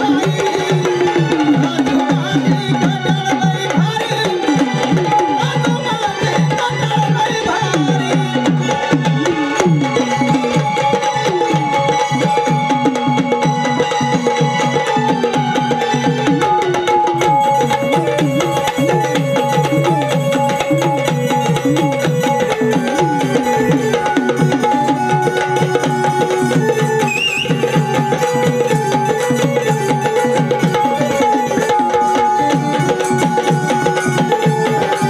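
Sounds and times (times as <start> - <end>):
hand drums fast rhythm: 0.0 - 35.0.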